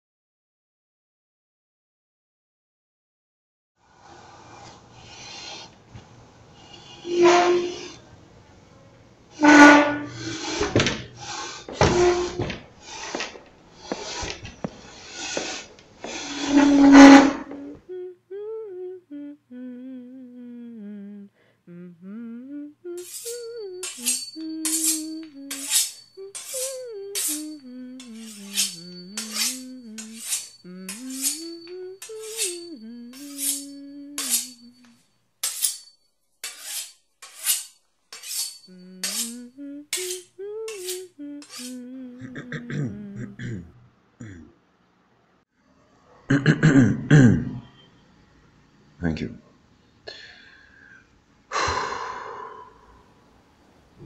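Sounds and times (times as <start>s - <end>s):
person humming a tune: 17.2s - 35.0s, 38.6s - 44.4s.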